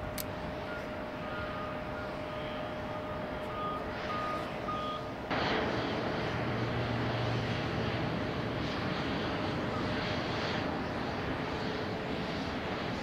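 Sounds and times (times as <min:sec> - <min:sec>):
loud rush with low hum: 0:00.0 - 0:13.0
vehicle reversing alarm beeping: 0:00.4 - 0:05.2, 0:09.6 - 0:10.1.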